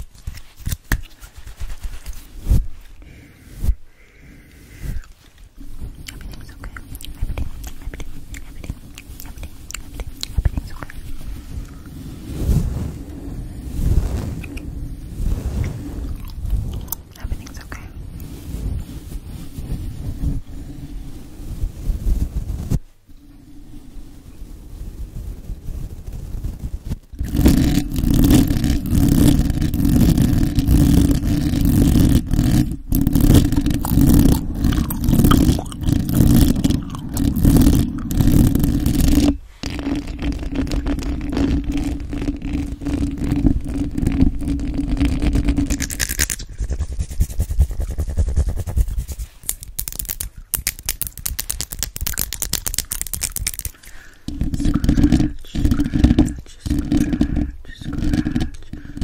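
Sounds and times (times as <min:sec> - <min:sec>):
brush sweeping over microphone: 0:00.4 - 0:03.9, 0:10.9 - 0:17.0, 0:17.7 - 0:23.0, 0:46.4 - 0:49.5
fingernails scratching microphone: 0:05.7 - 0:20.5, 0:26.0 - 0:50.3, 0:51.1 - 0:59.0.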